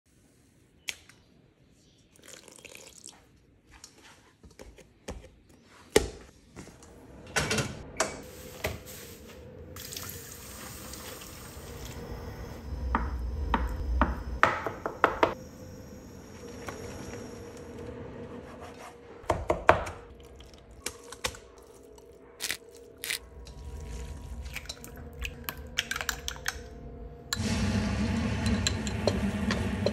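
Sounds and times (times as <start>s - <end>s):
water splashing in colander: 23.6s - 26.6s.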